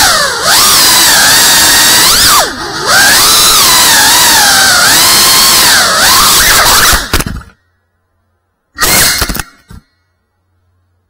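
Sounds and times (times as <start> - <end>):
quadcopter motors whining: 0.0 - 7.5.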